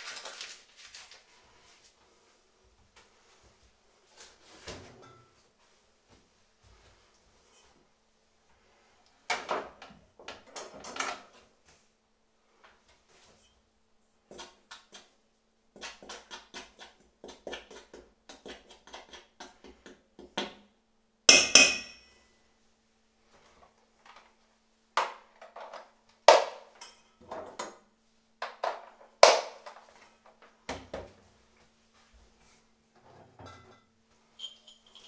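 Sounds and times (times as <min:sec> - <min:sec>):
metal utensils knocking on wood: 0:21.3 - 0:22.0.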